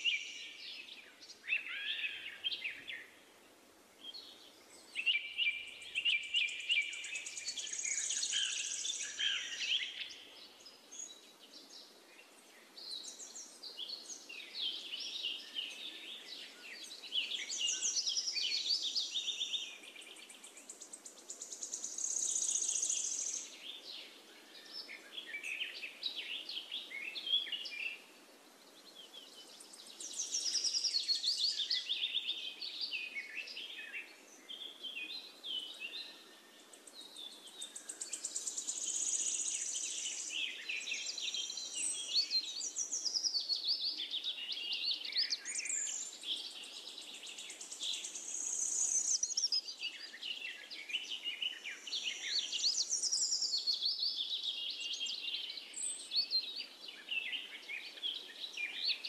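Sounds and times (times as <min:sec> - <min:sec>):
birds chirping and singing: 0:28.9 - 0:59.0.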